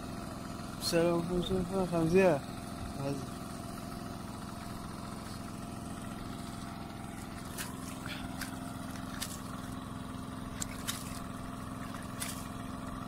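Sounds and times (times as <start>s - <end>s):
engine hum: 0.0s - 13.0s
small water splashes: 4.4s - 13.0s.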